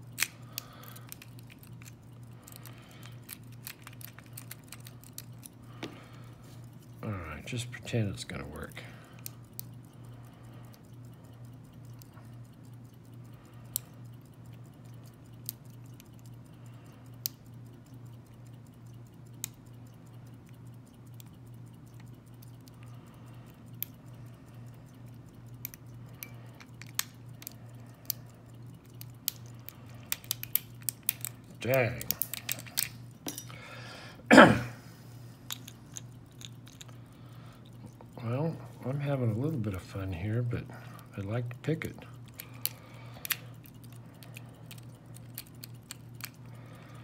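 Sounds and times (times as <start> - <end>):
steady low hum: 0.0 - 47.0
lock pick clicking in padlock: 30.1 - 31.4, 32.0 - 33.5.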